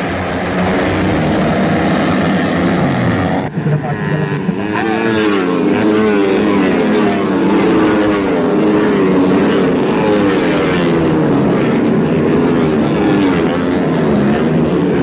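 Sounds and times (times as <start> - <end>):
racing motorcycle engines: 0.0 - 15.0.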